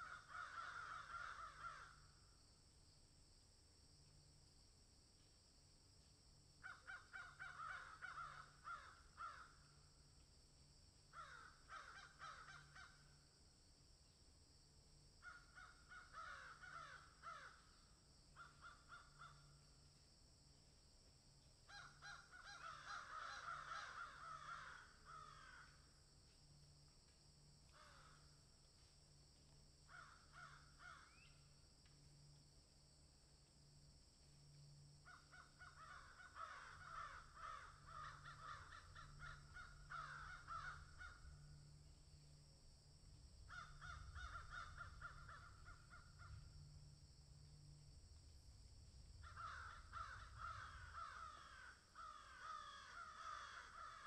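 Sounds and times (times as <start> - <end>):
low hum: 46.2 - 49.4.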